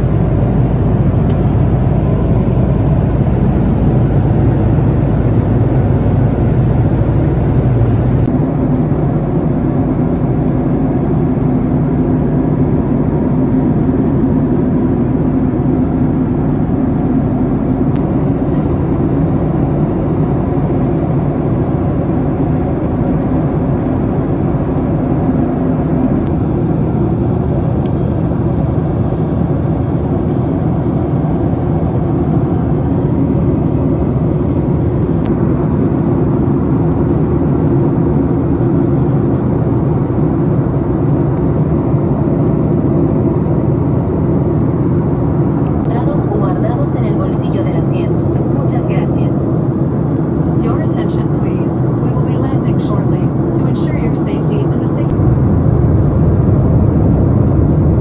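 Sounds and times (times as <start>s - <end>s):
jet engine and airflow noise: 0.0s - 58.0s.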